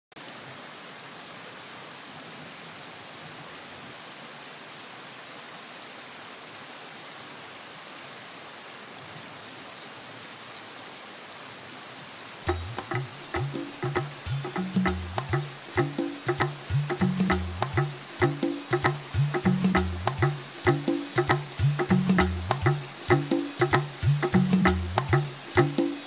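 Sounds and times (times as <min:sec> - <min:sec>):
steady rushing hiss: 0:12.4 - 0:26.0.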